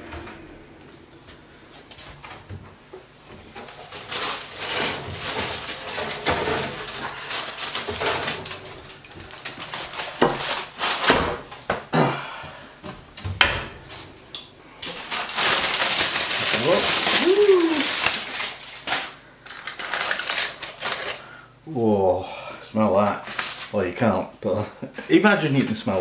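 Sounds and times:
oven opening: 0.0 - 9.4, 13.2 - 14.1
foil rustling and clatter: 3.4 - 11.6, 14.8 - 21.3, 23.0 - 24.1, 24.9 - 26.0.

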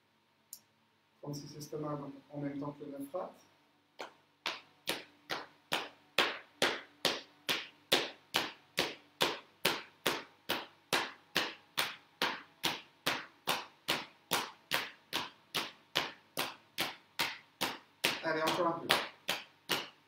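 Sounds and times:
hands slapping thigh: 4.0 - 20.0.

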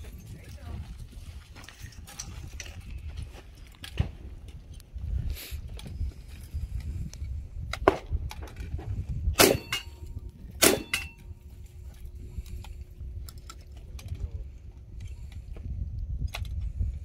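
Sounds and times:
rifle shots: 9.4 - 10.0, 10.6 - 11.2
steel plate clanging: 9.4 - 10.0, 10.6 - 11.3.

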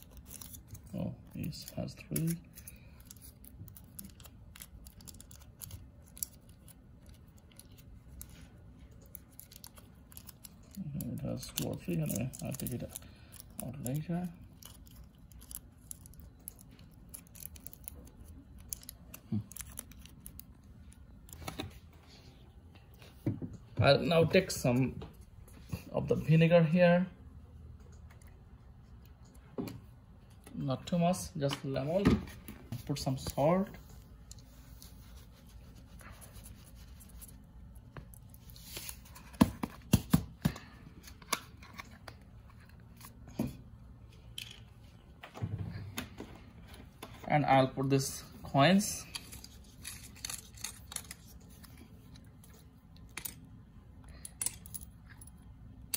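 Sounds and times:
aluminium foil crinkling: 0.0 - 21.6, 49.0 - 52.6.

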